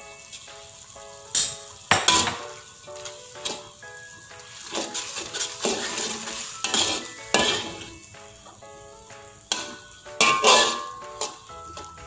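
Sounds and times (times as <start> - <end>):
background music: 0.0 - 12.0
metal ladle scraping a wok: 3.0 - 3.8, 4.4 - 8.0, 9.5 - 11.5.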